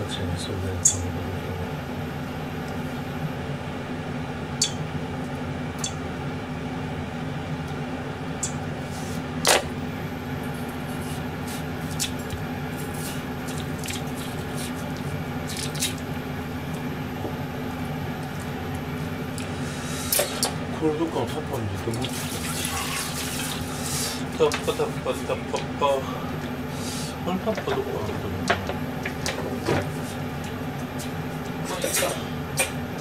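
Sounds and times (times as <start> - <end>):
steady low hum: 0.0 - 33.0
squishes of wet fruit flesh: 10.6 - 16.9.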